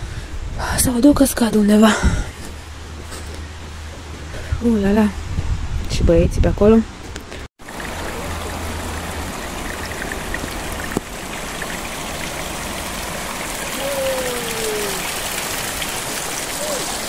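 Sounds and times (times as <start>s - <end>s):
stream running over stones: 7.6s - 17.0s.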